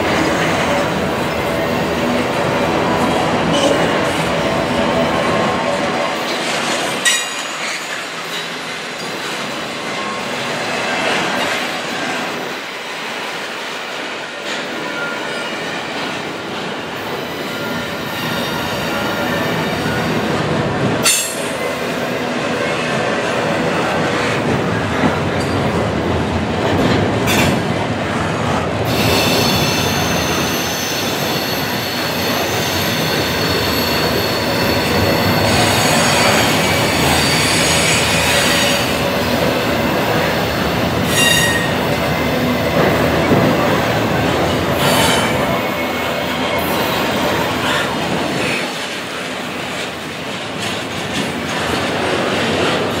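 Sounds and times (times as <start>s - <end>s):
train wheels rumbling on rail: 0.0s - 53.0s
high-pitched wheel squeal: 41.1s - 41.8s.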